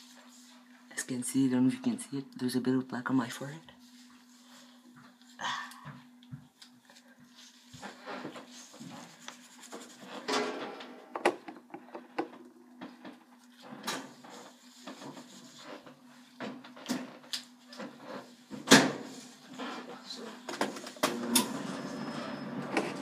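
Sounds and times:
gloved hands rubbing hair: 0:08.4 - 0:10.1.

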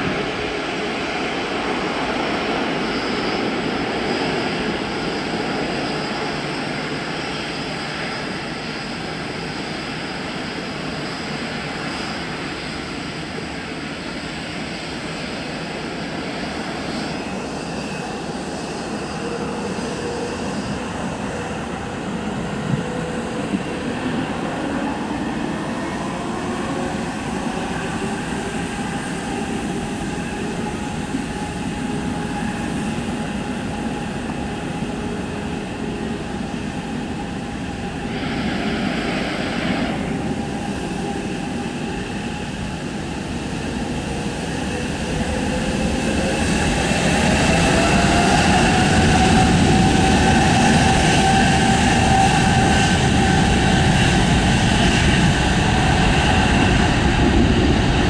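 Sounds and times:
jet engines whining: 0:00.0 - 0:58.0.

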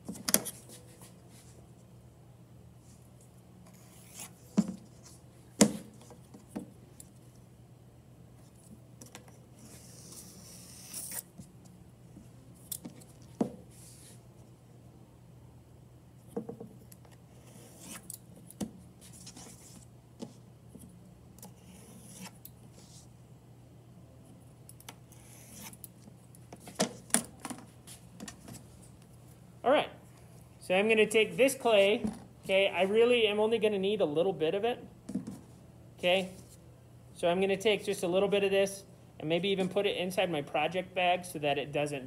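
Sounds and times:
steady low hum: 0:00.0 - 0:42.0
knife scraping through clay: 0:09.6 - 0:11.3, 0:21.4 - 0:22.9, 0:25.1 - 0:25.8.

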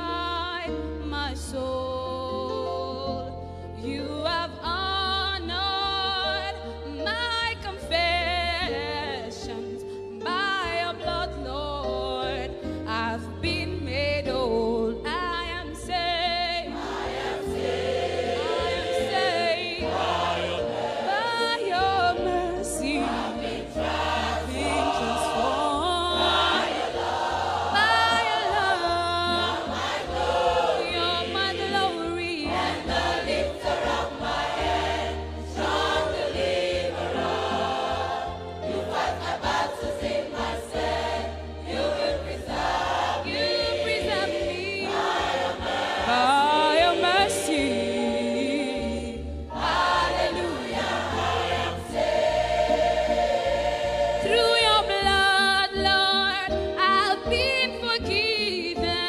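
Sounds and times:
gospel choir singing: 0:00.0 - 0:01.7, 0:02.6 - 0:59.0.

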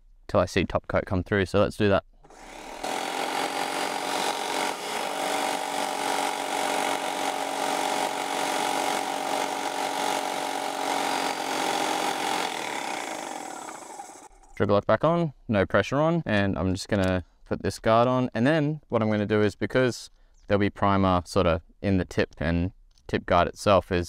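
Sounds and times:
paint sprayer pump motor humming: 0:02.3 - 0:14.6.

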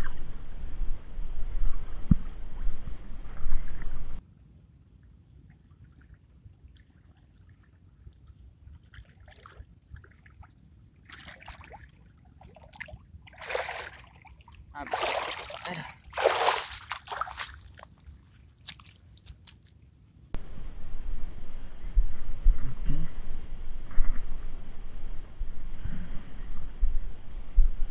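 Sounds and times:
water splashing and sloshing: 0:05.0 - 0:20.4
water dripping: 0:12.8 - 0:20.3.

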